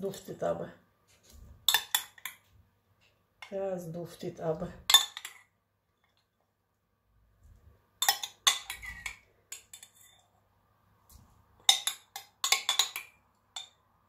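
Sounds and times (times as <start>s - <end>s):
spoon clinking against glass bowl: 8.0s - 10.2s, 11.7s - 13.8s.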